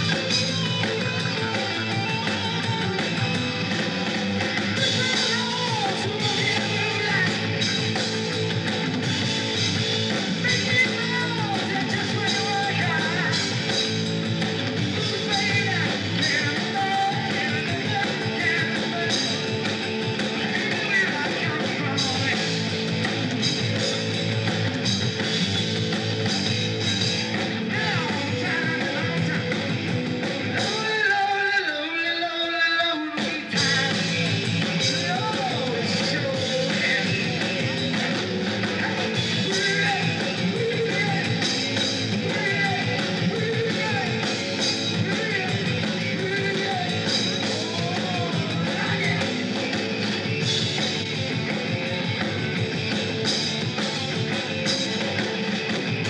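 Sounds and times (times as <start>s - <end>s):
bass guitar: 0.0s - 31.9s, 33.1s - 56.0s
distorted electric guitar: 0.0s - 56.0s
drums: 0.0s - 56.0s
man singing into a microphone: 4.8s - 7.6s, 10.4s - 13.5s, 15.0s - 19.4s, 20.4s - 22.6s, 27.7s - 29.7s, 30.5s - 49.4s.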